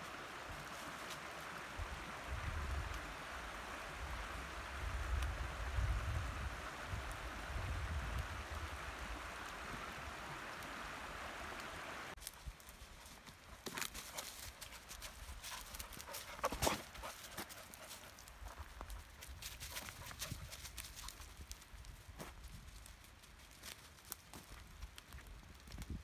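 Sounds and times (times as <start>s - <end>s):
creek water rushing: 0.0s - 12.2s, 12.9s - 20.6s
dog paws crunching dry leaves: 12.2s - 25.9s.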